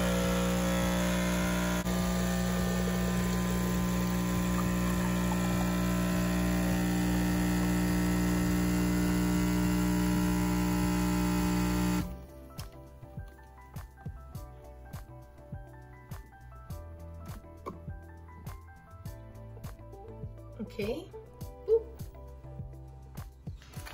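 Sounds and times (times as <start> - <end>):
espresso machine pump humming: 0.0 - 12.2.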